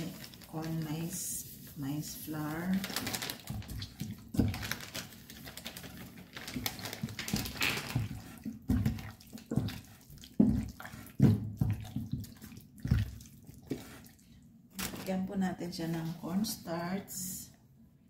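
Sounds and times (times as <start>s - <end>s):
hands squelching raw chicken: 0.0s - 14.3s.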